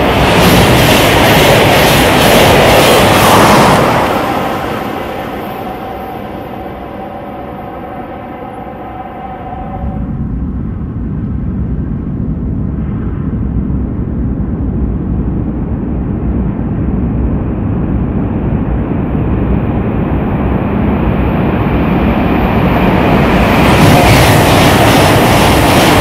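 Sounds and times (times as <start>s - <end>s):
train rumbling in tunnel: 0.0s - 26.0s.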